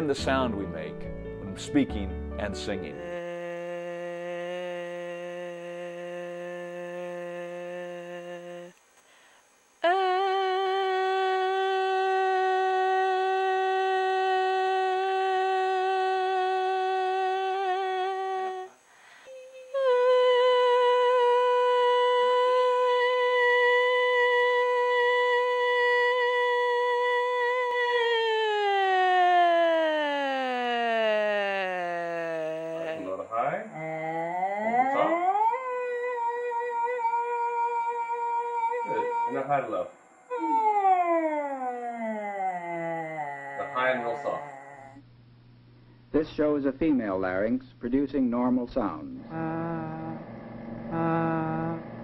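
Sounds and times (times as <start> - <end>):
woman holding sung notes: 2.7 - 33.1, 48.4 - 50.3.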